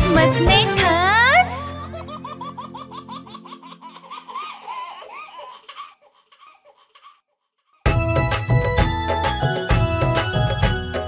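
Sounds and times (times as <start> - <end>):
children's song: 0.0 - 1.8
lively music: 0.0 - 3.0, 7.9 - 11.0
cartoon family laughing: 1.5 - 5.7.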